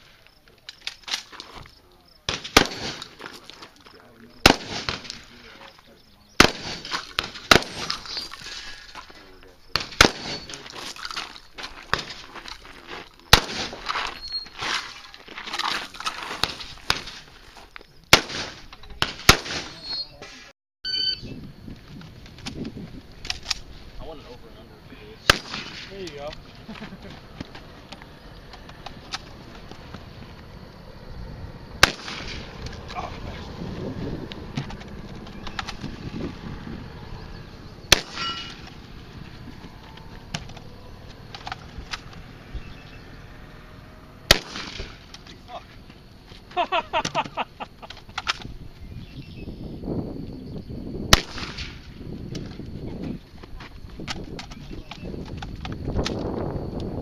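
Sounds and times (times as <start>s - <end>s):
shotgun blasts: 2.3s - 3.3s, 4.4s - 5.4s, 6.4s - 8.2s, 9.7s - 10.6s, 13.3s - 13.9s, 18.1s - 19.8s, 25.2s - 26.1s, 31.8s - 32.7s, 37.9s - 38.7s, 44.2s - 45.1s, 51.1s - 52.0s
faint sharp cracks: 31.8s - 33.1s, 44.3s - 45.5s.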